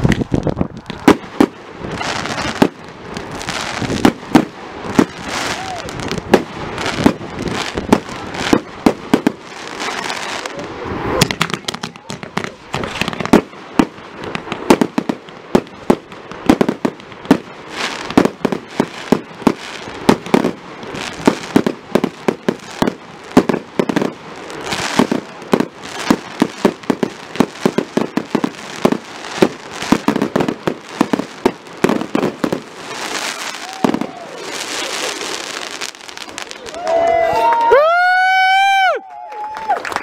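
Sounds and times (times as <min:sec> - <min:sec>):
fireworks bangs: 0:00.0 - 0:38.8
fireworks crackling: 0:00.0 - 0:40.0.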